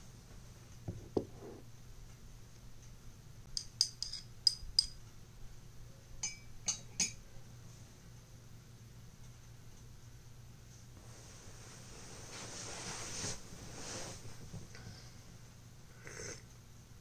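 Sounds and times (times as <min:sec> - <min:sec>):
spoon clinking coffee cup: 0:03.6 - 0:05.0, 0:06.2 - 0:07.2.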